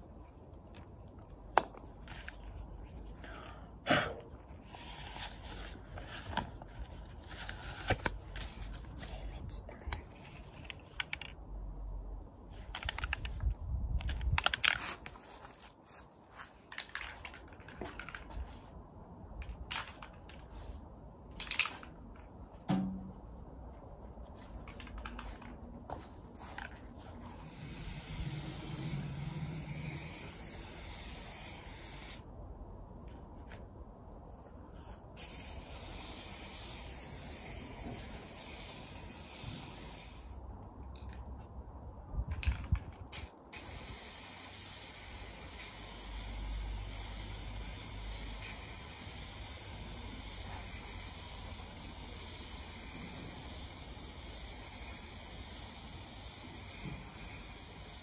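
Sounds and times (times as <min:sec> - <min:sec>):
spray paint can hissing: 0:27.3 - 0:32.3, 0:35.2 - 0:40.4, 0:43.1 - 0:58.0.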